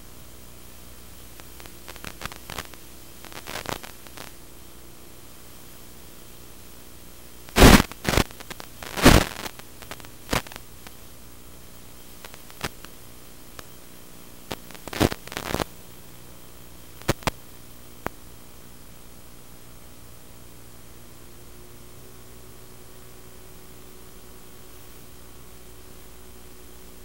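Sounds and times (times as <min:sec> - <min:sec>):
static hiss: 0:00.0 - 0:27.0
radio interference crackle: 0:01.1 - 0:04.6, 0:05.6 - 0:18.9.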